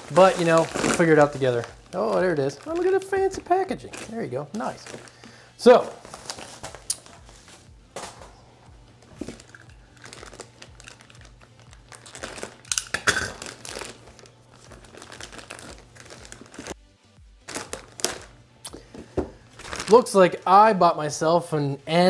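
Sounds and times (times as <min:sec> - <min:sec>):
plastic bag crinkling: 0:00.0 - 0:07.3, 0:09.0 - 0:16.8, 0:17.4 - 0:18.4, 0:19.6 - 0:20.5.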